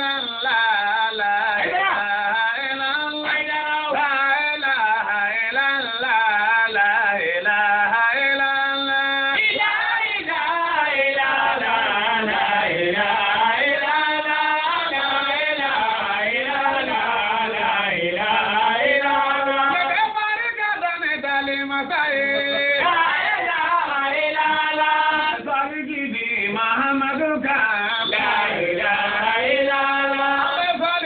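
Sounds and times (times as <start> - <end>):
voices chanting a melody: 22.3 - 25.4, 28.0 - 30.6.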